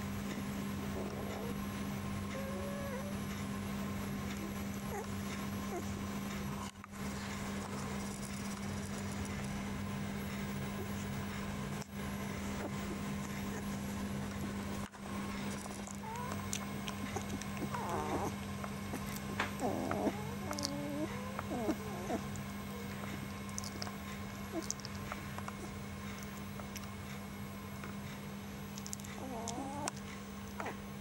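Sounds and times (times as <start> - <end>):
steady low hum: 0.0 - 31.0
puppy whimpering and squeaking: 2.3 - 3.2, 4.4 - 5.9, 15.7 - 22.3, 29.2 - 30.0.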